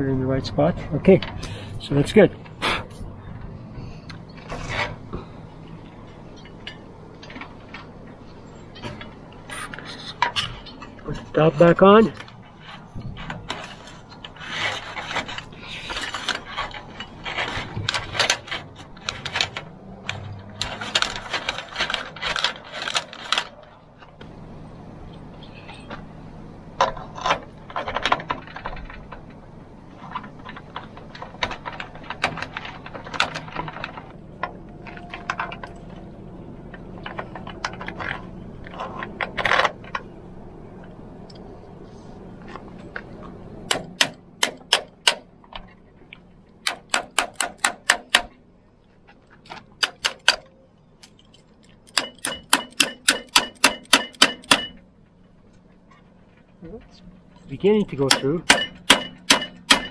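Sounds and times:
metal clicks and taps of tools: 51.0s - 54.8s.

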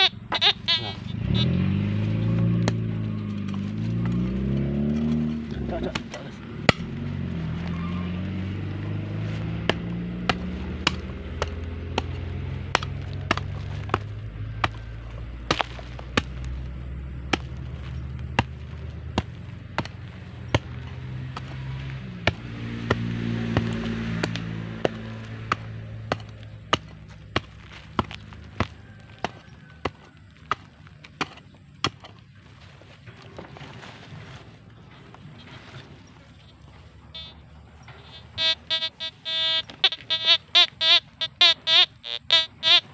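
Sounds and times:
hoe chopping into dry soil: 2.0s - 7.6s, 8.5s - 32.5s.

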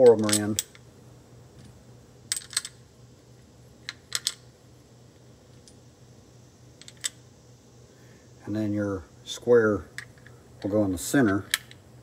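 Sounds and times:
small metal parts clicking: 0.0s - 0.8s, 2.3s - 2.8s, 3.8s - 4.4s, 6.8s - 7.2s, 10.0s - 11.8s.

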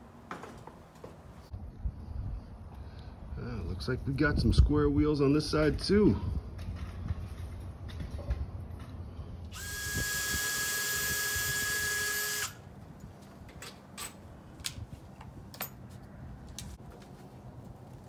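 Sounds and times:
cordless drill running: 9.5s - 12.6s.

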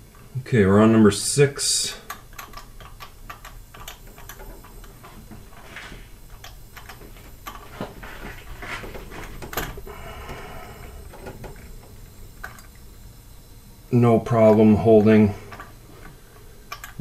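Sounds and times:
steady low hum: 0.0s - 17.0s
compressed air hissing: 7.8s - 11.8s.

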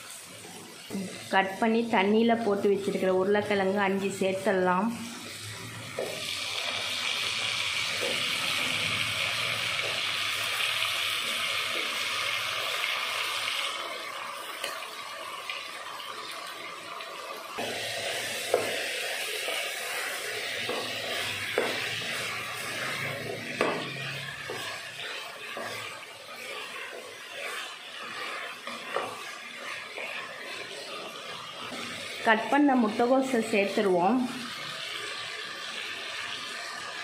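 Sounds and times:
potatoes sizzling in hot oil: 0.0s - 37.0s
wooden spoon scraping pot: 17.6s - 35.1s
spoon knocking pot: 23.6s - 24.6s.

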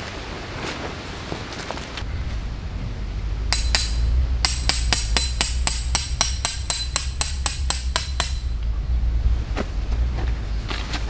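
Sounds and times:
hammer striking tent peg: 3.5s - 8.6s.

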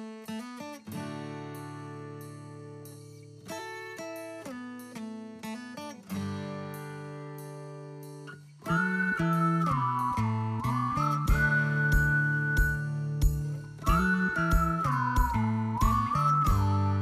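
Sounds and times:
plucked string notes: 8.6s - 17.0s.

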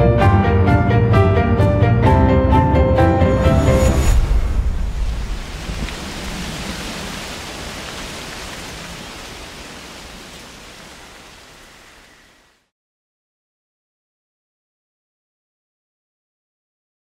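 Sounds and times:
steady hiss of noise: 4.8s - 12.7s.

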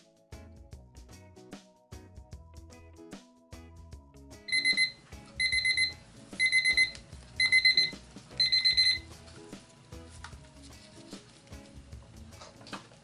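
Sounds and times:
kitchen timer beeping: 4.5s - 9.1s.

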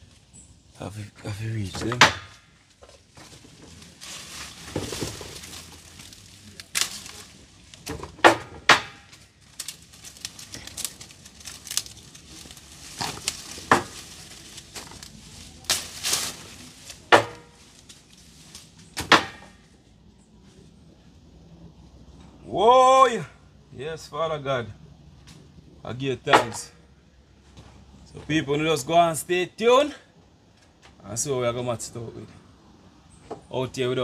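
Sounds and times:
leaves rustling: 0.0s - 21.2s
twigs and branches snapping: 1.8s - 19.6s.

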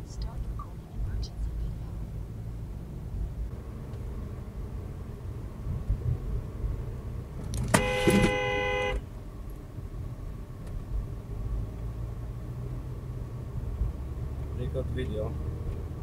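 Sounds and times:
car driving rumble: 0.0s - 16.0s
car horn honk: 7.6s - 9.1s.

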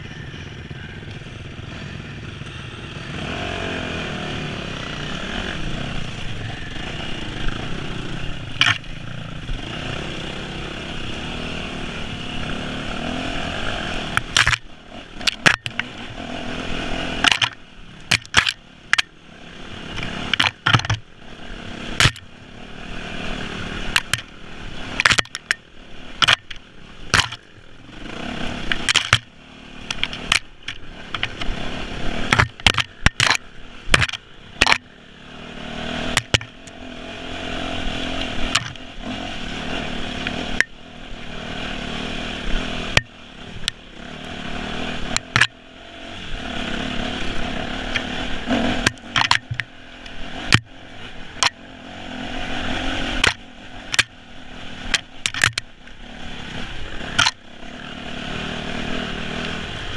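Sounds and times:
dirt bike engine revving: 0.0s - 59.9s
knocks and clatter from bumps: 48.8s - 49.7s.

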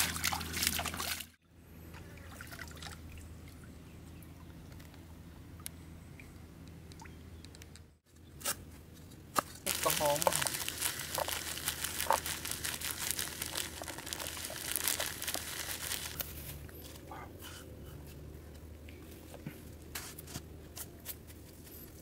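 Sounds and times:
plastic bag crinkling: 9.6s - 16.5s.

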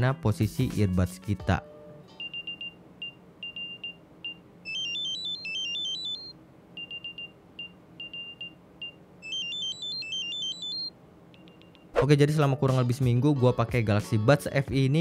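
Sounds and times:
tones climbing in pitch: 4.7s - 6.3s.

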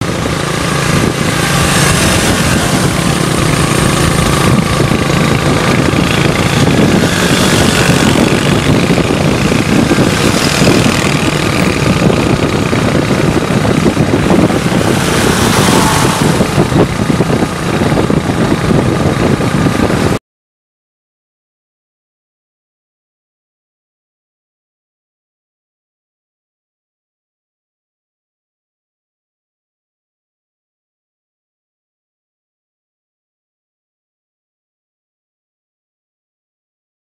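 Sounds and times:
motorbike engines running: 0.0s - 20.2s
wind noise on microphone: 0.0s - 20.2s.

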